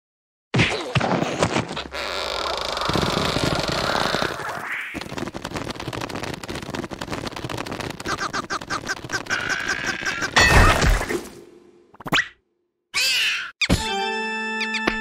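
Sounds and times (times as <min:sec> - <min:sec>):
cartoon rattling clatter: 0:02.7 - 0:10.4.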